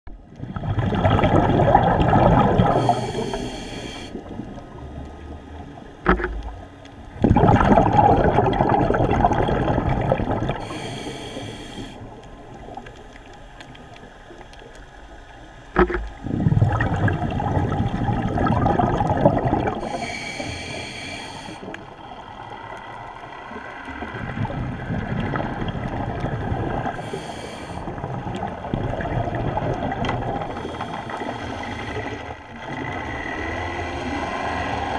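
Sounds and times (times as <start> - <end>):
bubbling exhaled air: 0.4 - 4.8, 6.1 - 13.3, 15.8 - 34.9
regulator inhalation hiss: 2.7 - 4.2, 10.6 - 12.1, 19.8 - 21.8, 27.0 - 27.9, 30.6 - 32.2.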